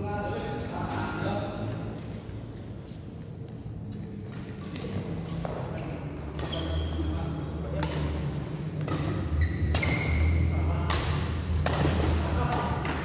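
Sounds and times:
low hum in large hall: 0.0 - 13.0
shoes squeaking on court: 3.9 - 7.5, 8.7 - 10.5
racket hitting shuttlecock: 6.3 - 7.0, 7.7 - 13.0.

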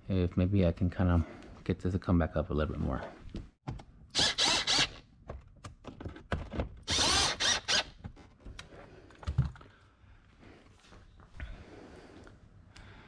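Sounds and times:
cordless drill bursts: 4.2 - 5.0, 6.9 - 8.0.

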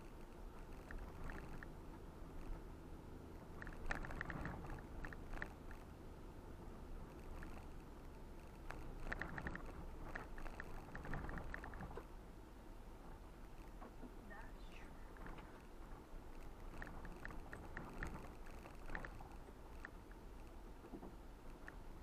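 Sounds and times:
low engine and road rumble: 0.0 - 22.0
rattles and clicks in cabin: 3.4 - 5.9, 7.1 - 12.2, 13.1 - 22.0.

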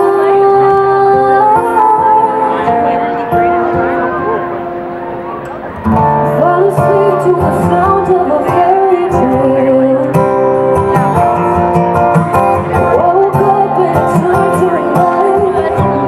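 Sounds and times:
woman singing into microphone: 0.0 - 3.3, 6.1 - 10.5, 12.8 - 16.0
strummed acoustic guitar: 0.0 - 16.0.

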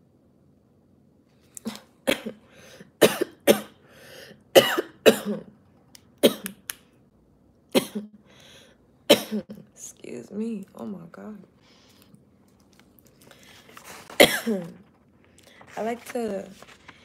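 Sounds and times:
woman coughing: 1.7 - 2.4, 3.0 - 3.8, 4.5 - 5.6, 6.2 - 6.6, 7.7 - 8.2, 9.1 - 9.7, 14.2 - 14.8.

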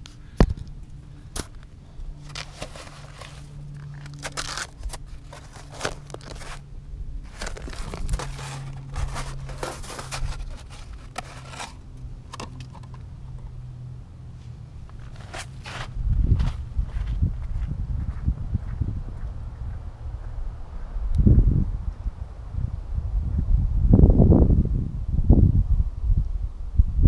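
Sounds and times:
snow crunching: 2.2 - 6.6, 7.2 - 11.8, 14.4 - 16.7
panels scraping and knocking: 7.3 - 13.4.

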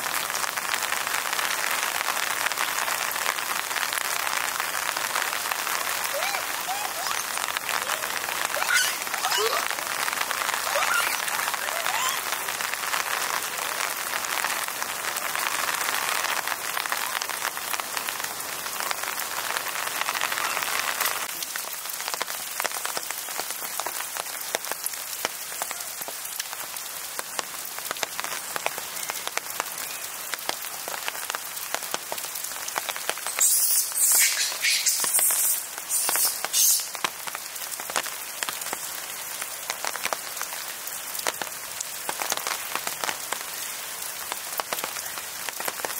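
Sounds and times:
rain pattering on foliage: 0.0 - 45.9
loud hissing bursts: 33.3 - 36.9.

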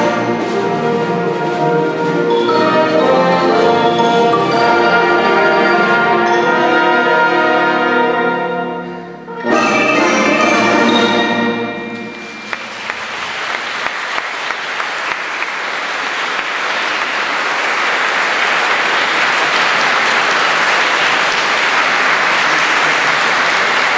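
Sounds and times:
wind band chord: 0.0 - 13.2
audience applause: 12.0 - 23.9.

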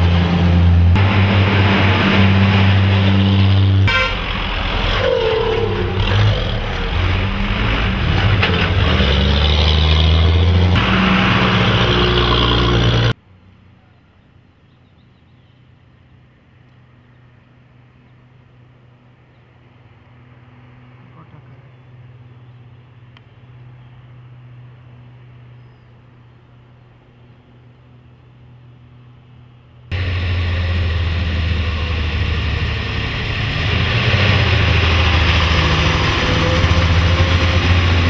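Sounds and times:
truck engines running loudly: 0.0 - 13.2, 29.9 - 38.0
faint outdoor background: 0.0 - 38.0
short horn toot: 3.8 - 4.3.

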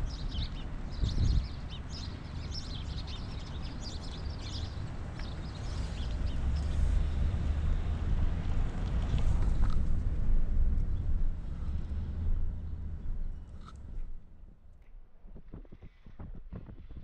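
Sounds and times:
small birds chirping: 0.0 - 7.3.

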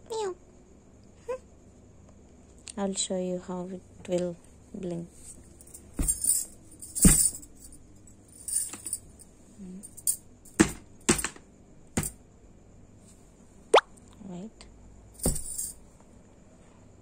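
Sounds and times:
jingling rattle: 5.2 - 10.2, 15.2 - 15.8.

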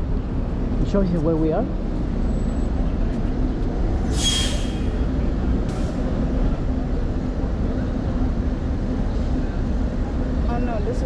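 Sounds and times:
bus and traffic rumble: 0.0 - 11.0
air brakes hissing: 4.0 - 6.1.

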